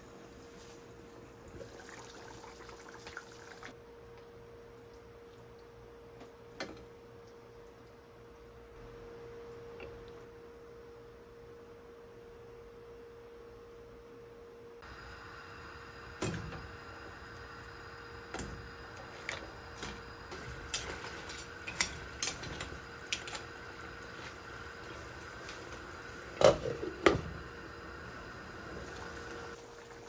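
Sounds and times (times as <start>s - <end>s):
gas burner hissing: 14.8s - 30.0s.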